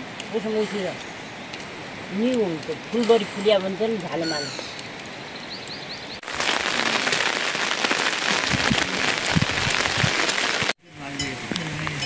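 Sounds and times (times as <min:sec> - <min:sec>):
heavy rain falling: 0:01.7 - 0:12.0
bird chirping: 0:03.0 - 0:06.2.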